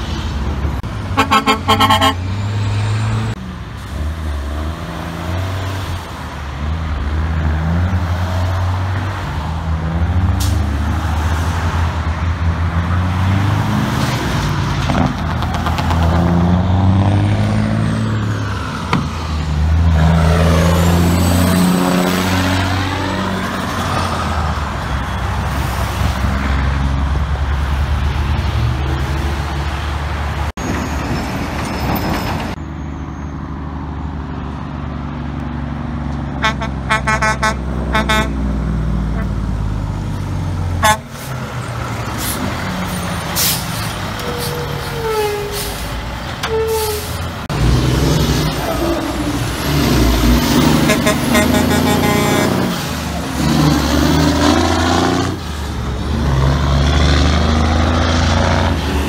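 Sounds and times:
truck revving past: 0.0 - 31.6, 32.4 - 59.0
diesel trucks accelerating: 0.0 - 59.0.

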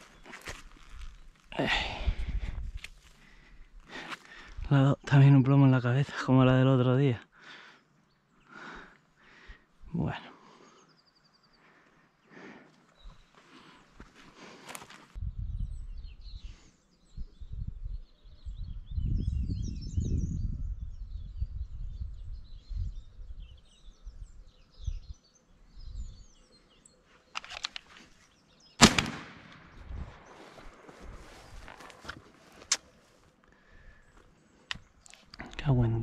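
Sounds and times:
small birds chirping: 0.0 - 36.0
wind buffeting microphone: 0.8 - 2.9, 15.2 - 25.2, 28.8 - 31.8
shotgun shot with echo: 28.8 - 29.8.

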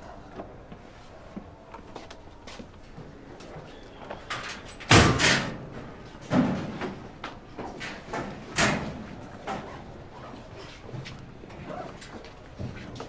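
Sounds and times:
metal locker doors clanking: 4.3 - 7.0, 7.8 - 9.7.

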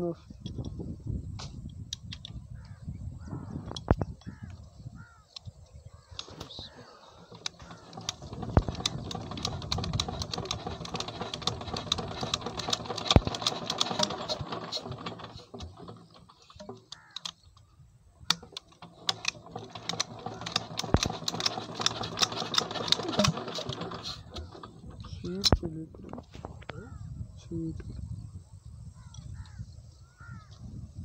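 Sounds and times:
stationary diesel engine clattering: 6.1 - 17.6, 18.3 - 27.0.

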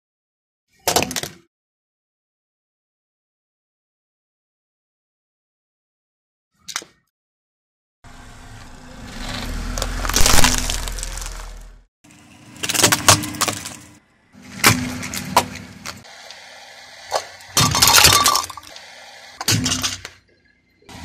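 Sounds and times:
snack packet crunching under tyre: 9.7 - 11.7
plastic toys cracking: 9.8 - 11.6.

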